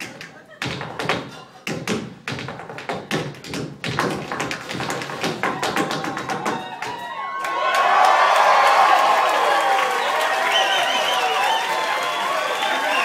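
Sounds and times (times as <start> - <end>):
tap shoes on stage floor: 0.0 - 7.1
audience cheering: 5.5 - 13.0.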